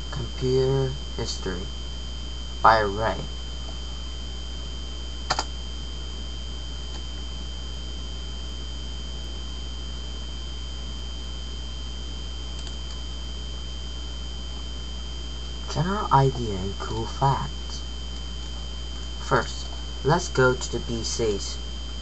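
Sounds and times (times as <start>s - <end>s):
faint high whining tones: 0.0s - 22.0s
low electrical hum: 0.0s - 22.0s
sharp double click: 5.3s - 5.5s.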